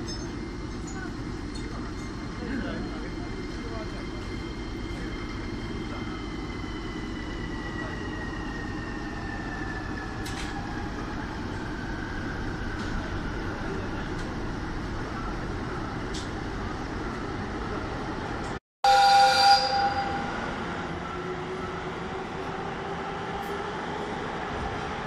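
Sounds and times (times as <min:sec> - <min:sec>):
electric locomotive humming: 0:00.0 - 0:25.0
locomotive running noise and whine: 0:00.0 - 0:25.0
train horn blast: 0:18.8 - 0:20.4.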